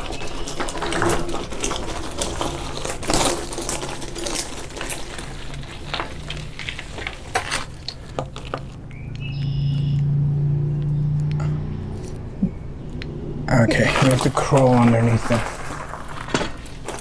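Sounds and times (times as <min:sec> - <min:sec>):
bike clicks and rattles: 0:00.0 - 0:09.5, 0:13.9 - 0:17.0
bicycle tyres crunching gravel: 0:00.0 - 0:10.0, 0:13.5 - 0:17.0.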